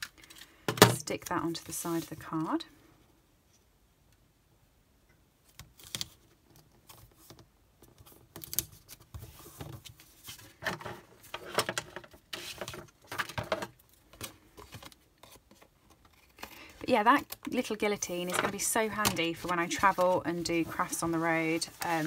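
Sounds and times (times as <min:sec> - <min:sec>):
paper and card rustling: 0:00.0 - 0:02.6, 0:08.0 - 0:22.0.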